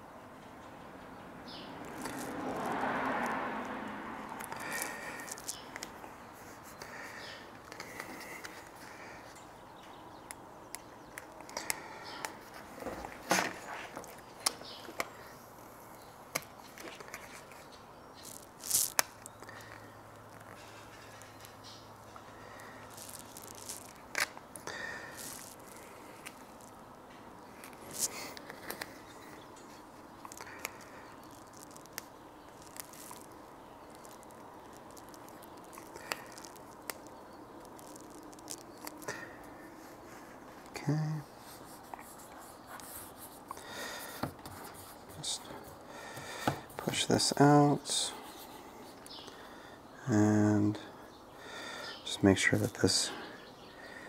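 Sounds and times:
low steady hiss: 0.0s - 54.0s
vinyl skin rustling: 12.3s - 15.4s, 16.3s - 19.3s, 22.6s - 26.8s, 27.5s - 47.6s.

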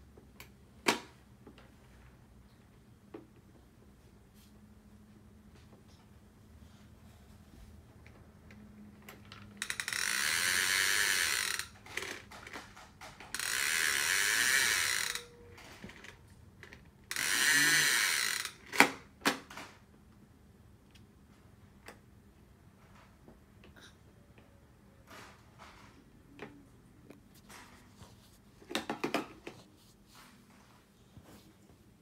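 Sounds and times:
toy lawn mower clicking rattle: 9.3s - 19.0s.

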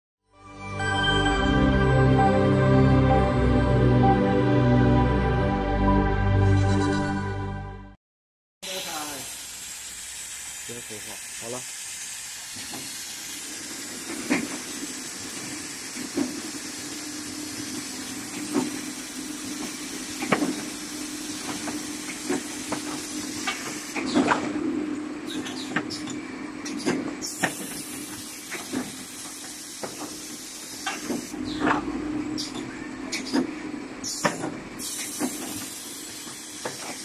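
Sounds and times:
machine hum and hiss: 8.7s - 37.0s.

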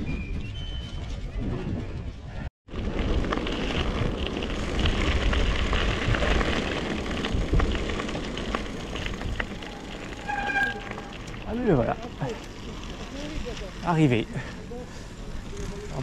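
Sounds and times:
bike clicks and rattles: 2.8s - 16.0s.

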